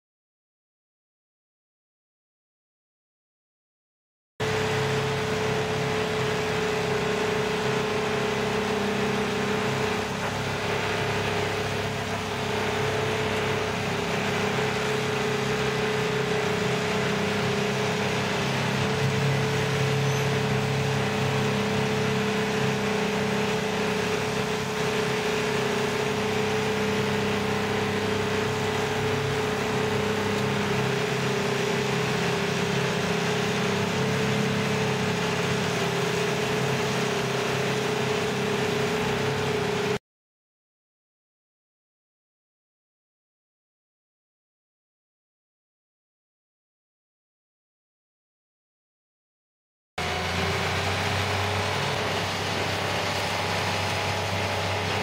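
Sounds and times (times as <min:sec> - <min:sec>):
stump grinder engine running: 0:04.4 - 0:40.0, 0:50.0 - 0:55.0.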